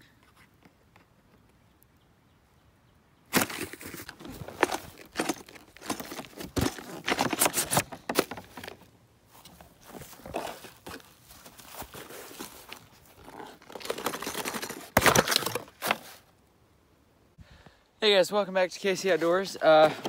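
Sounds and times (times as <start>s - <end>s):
cardboard box crinkling and tearing: 3.4s - 8.8s, 9.8s - 16.2s.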